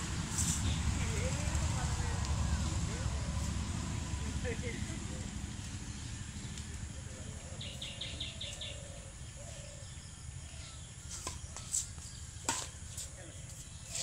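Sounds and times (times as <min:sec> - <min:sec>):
low background rumble: 0:00.0 - 0:11.5
racket hitting shuttlecock: 0:11.1 - 0:13.1.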